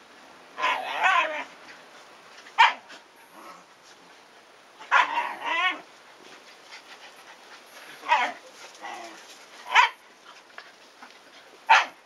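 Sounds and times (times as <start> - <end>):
dog barking: 2.6 - 2.9, 4.9 - 5.2, 9.7 - 10.0, 11.7 - 12.0.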